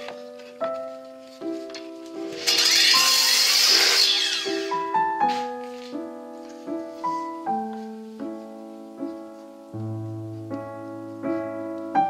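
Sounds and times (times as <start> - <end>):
piano music: 0.0 - 12.0
saw blade spinning down: 2.3 - 5.0.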